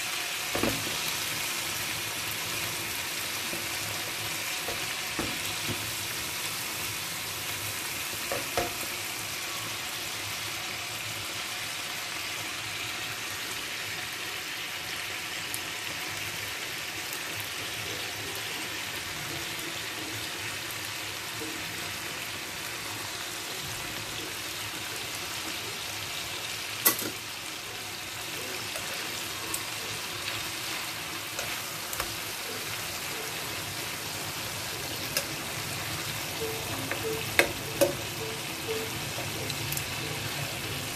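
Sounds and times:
meat sizzling in a frying pan: 0:00.0 - 0:40.9.

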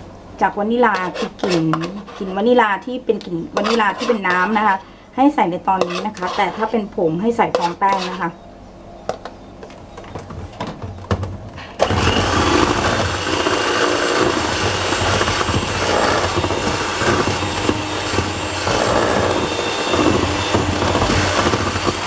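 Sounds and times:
electric hand mixer running: 0:11.8 - 0:22.0.

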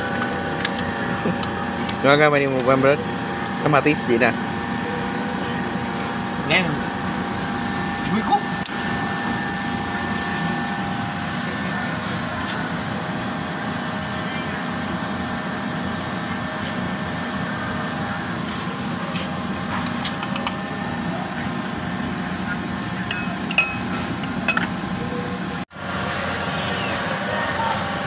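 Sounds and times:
steady background hum: 0:00.0 - 0:28.0
metal lid clinking on pot: 0:23.1 - 0:23.9.

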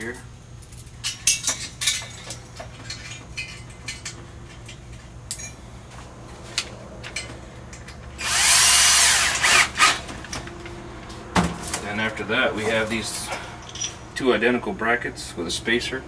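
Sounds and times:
metal parts clicking and tapping: 0:00.6 - 0:05.6
cordless drill whirring: 0:08.2 - 0:10.0.

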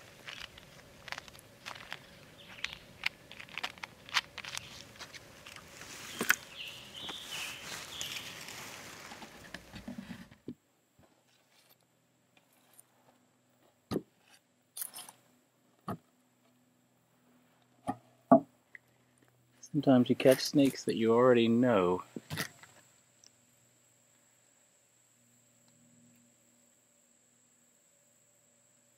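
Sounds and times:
rustling in grass: 0:00.0 - 0:10.3.

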